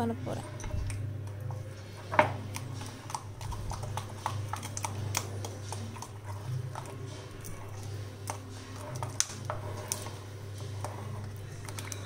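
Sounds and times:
spoon stirring batter in bowl: 0.5s - 12.0s.

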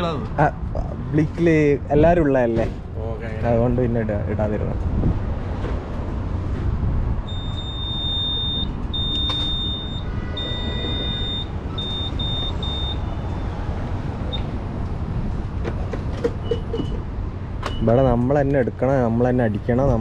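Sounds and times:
car rumble: 0.0s - 20.0s
high-pitched electronic beeps: 7.3s - 13.0s.

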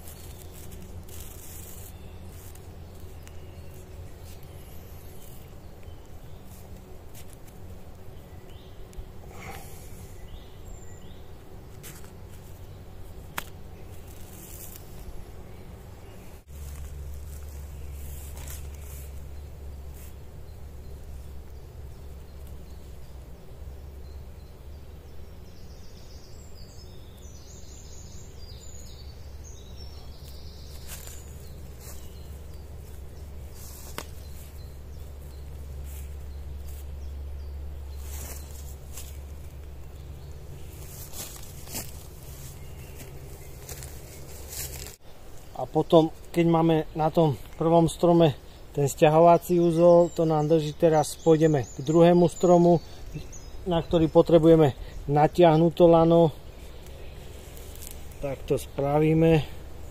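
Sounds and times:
rustling: 0.0s - 10.6s, 11.2s - 23.0s, 28.8s - 45.6s, 56.4s - 58.7s.

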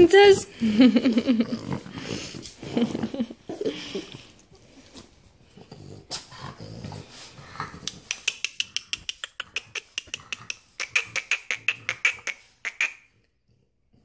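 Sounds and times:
dog claws clicking on tile: 7.7s - 12.8s.

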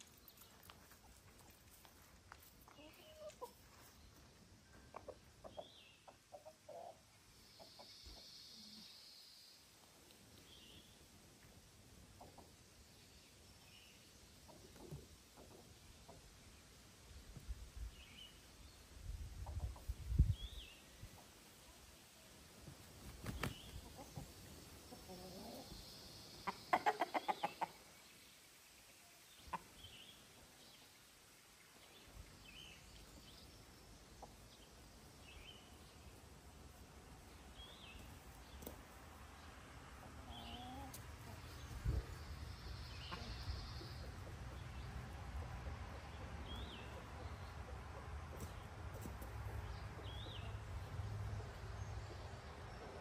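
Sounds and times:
chickens clucking: 2.7s - 8.9s, 11.4s - 12.8s, 14.3s - 16.6s, 19.3s - 21.4s, 22.8s - 28.0s, 29.3s - 30.1s, 33.9s - 35.9s, 36.8s - 50.6s.

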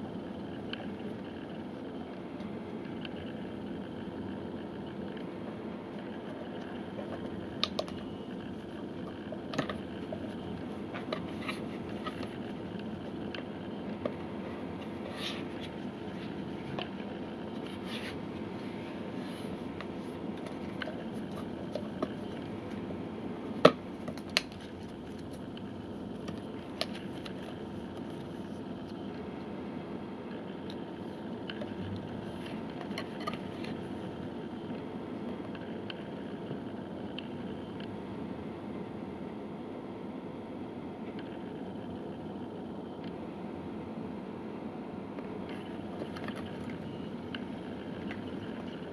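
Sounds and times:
steady low hum: 0.0s - 48.9s.

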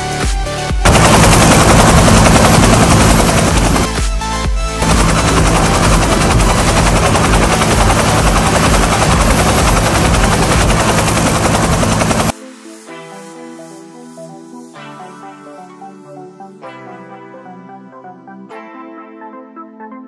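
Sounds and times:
soft background music: 0.0s - 20.0s
helicopter rotor chopping: 0.8s - 4.1s, 4.8s - 12.3s.

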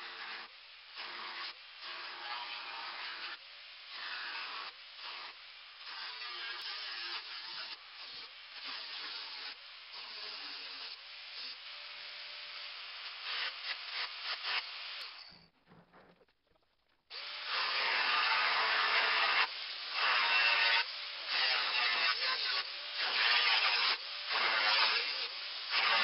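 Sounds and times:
angle grinder screeching on metal: 0.0s - 3.4s, 4.0s - 11.6s, 17.2s - 26.0s.

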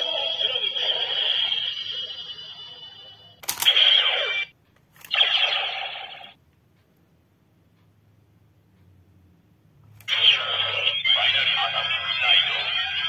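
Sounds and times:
electronic tone from toy: 0.0s - 4.5s.

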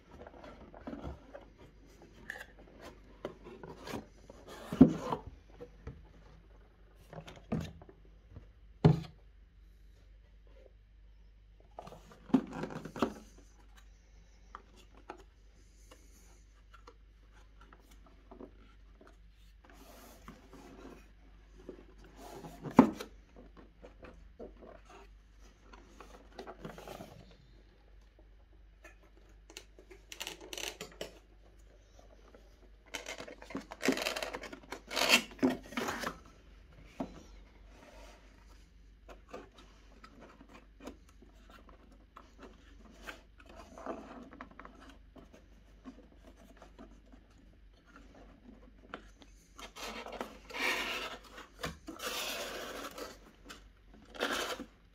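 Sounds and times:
cardboard rubbing and scraping: 19.4s - 23.8s, 49.5s - 53.4s, 54.1s - 54.7s.

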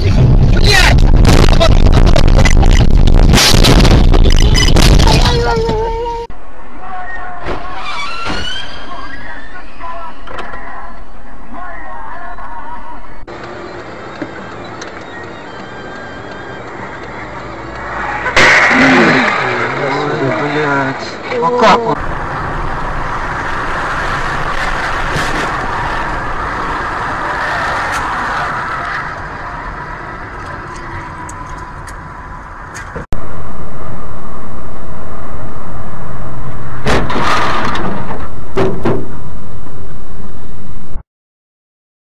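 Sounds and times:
vehicle road and wind noise: 0.0s - 41.0s
sharp bangs: 0.9s - 5.3s, 18.2s - 19.9s, 36.7s - 39.2s.

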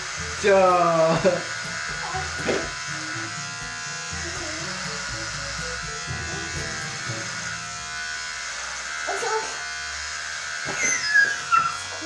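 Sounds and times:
background music with bass line: 0.0s - 7.8s
electric hair clippers buzzing: 0.0s - 12.0s.

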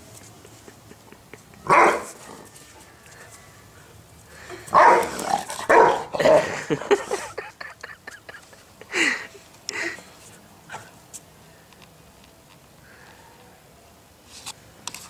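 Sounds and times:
dog barking: 1.6s - 2.3s, 4.7s - 6.2s.

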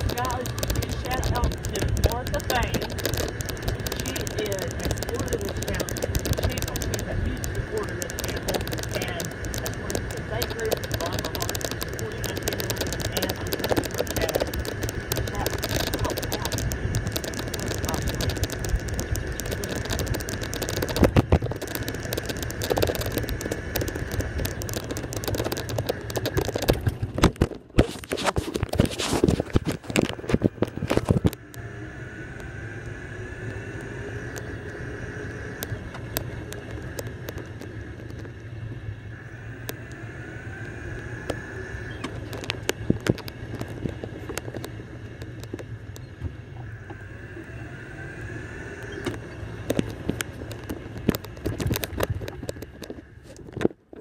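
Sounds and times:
knocks and rattles: 0.0s - 31.4s
golf cart driving: 0.0s - 53.7s
faint motor whine: 0.0s - 54.0s.

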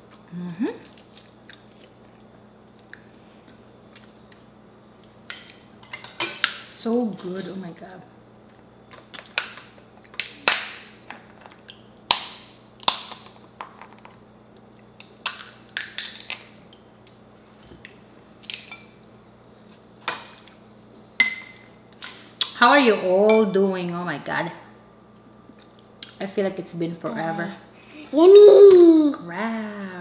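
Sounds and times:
crab shells cracking: 12.1s - 13.2s, 14.6s - 16.5s, 18.4s - 18.7s.

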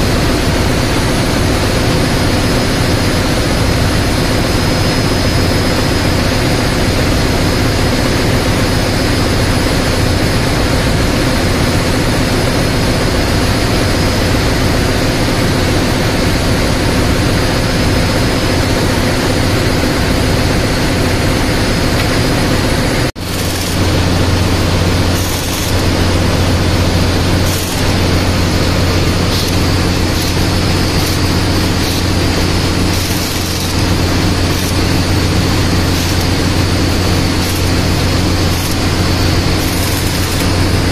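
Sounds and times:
engine room machinery drone: 0.0s - 40.9s
pneumatic hiss: 20.9s - 40.9s.

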